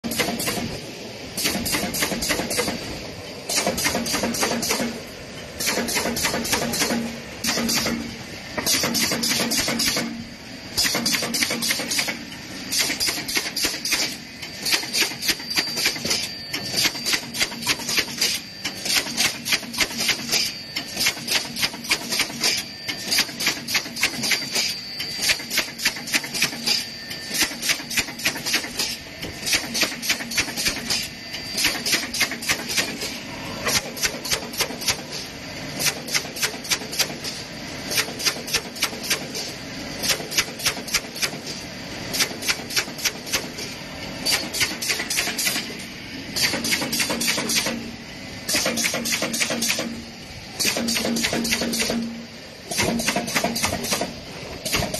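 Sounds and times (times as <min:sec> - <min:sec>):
machine clacking rapidly: 0:00.0 - 0:00.8, 0:01.4 - 0:02.9, 0:03.5 - 0:05.0, 0:05.6 - 0:10.2, 0:10.8 - 0:35.2, 0:35.8 - 0:41.5, 0:42.1 - 0:43.6, 0:44.2 - 0:45.7, 0:46.4 - 0:47.9, 0:48.5 - 0:50.0, 0:50.6 - 0:54.9
faint high whine: 0:06.8 - 0:28.0, 0:30.2 - 0:36.0.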